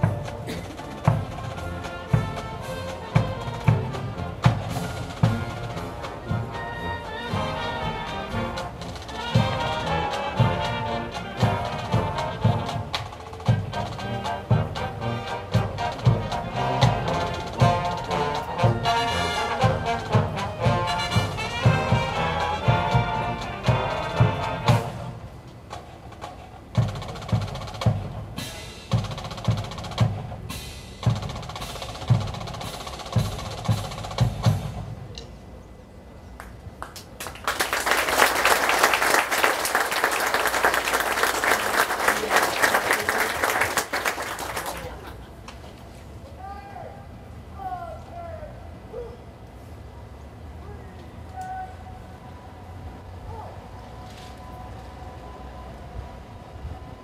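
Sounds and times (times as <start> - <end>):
drums beating: 0.0 - 35.1, 37.5 - 44.9
military band playing: 0.0 - 35.1, 37.4 - 45.1
audience applauding: 36.4 - 45.3.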